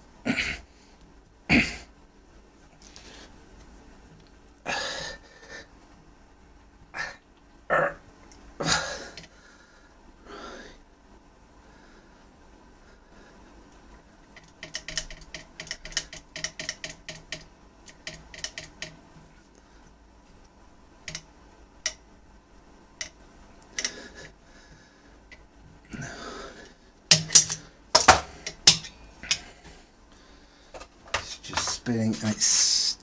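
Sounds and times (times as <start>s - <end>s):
metallic clicks of pliers: 27.1s - 29.4s.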